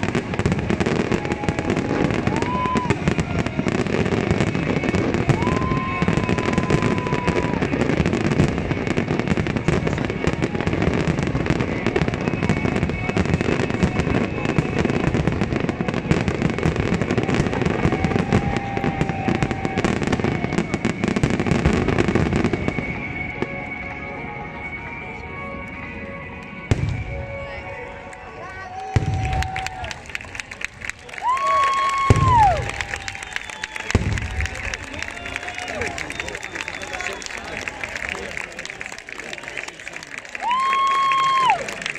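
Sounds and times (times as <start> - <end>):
firework whistles: 0.0 - 23.8, 31.2 - 37.6
fireworks bursting and crackling: 0.0 - 24.7, 26.3 - 41.9.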